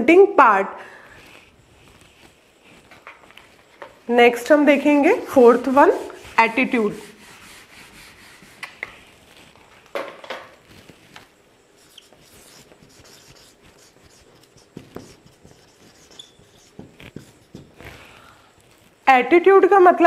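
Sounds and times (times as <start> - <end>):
marker pen writing on whiteboard: 11.8 - 18.0
rub or knock on whiteboard: 11.9 - 18.0.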